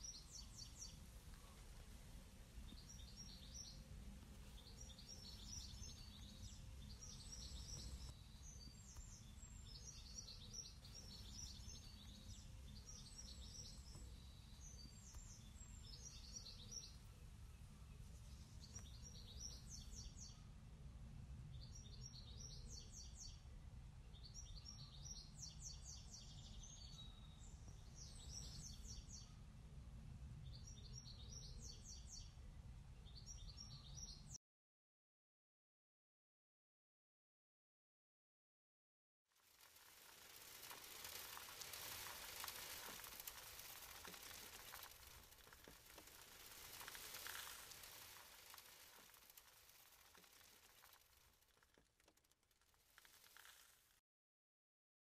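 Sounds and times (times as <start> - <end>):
songbird chirping: 0.0 - 20.6, 21.5 - 29.6, 30.4 - 34.4, 39.5 - 52.1
low outdoor rumble: 0.0 - 24.9, 26.4 - 33.2.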